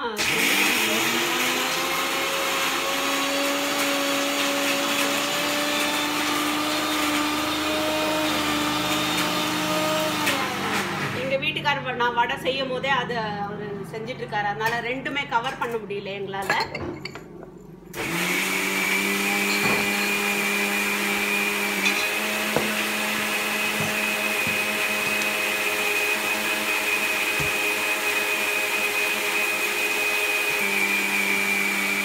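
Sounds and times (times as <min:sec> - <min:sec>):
mixer grinder running: 0:00.0 - 0:11.3, 0:18.0 - 0:32.0.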